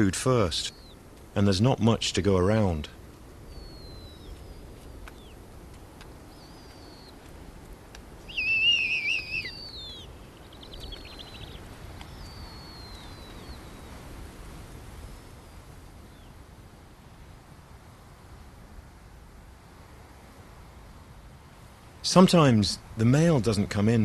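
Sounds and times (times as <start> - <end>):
owlets high falling whistles: 8.3 - 10.1.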